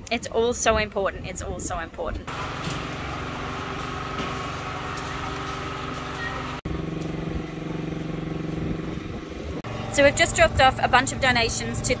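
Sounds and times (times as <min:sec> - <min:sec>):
vehicle engine idling: 0:02.3 - 0:12.0.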